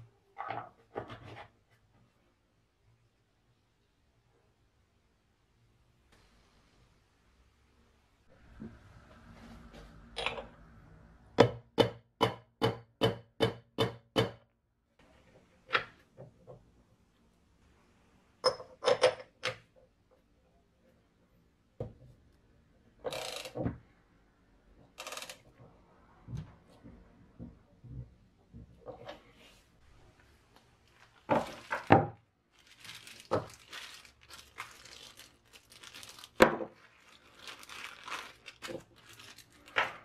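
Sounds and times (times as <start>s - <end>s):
ratchet wrench rasping: 23.1s - 23.6s, 25.0s - 25.4s.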